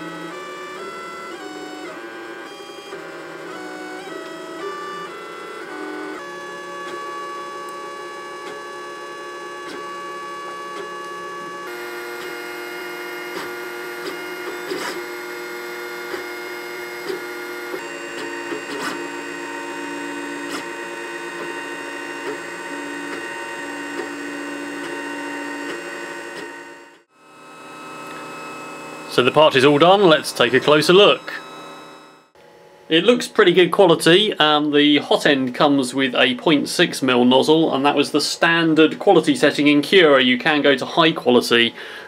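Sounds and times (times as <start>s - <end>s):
stepper motors whining: 0.0s - 32.4s.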